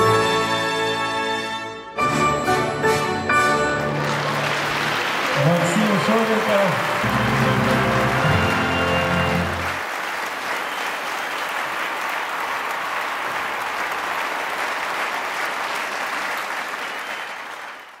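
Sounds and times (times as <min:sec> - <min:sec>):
audience applauding: 0:03.4 - 0:18.0
music chord: 0:07.0 - 0:09.8.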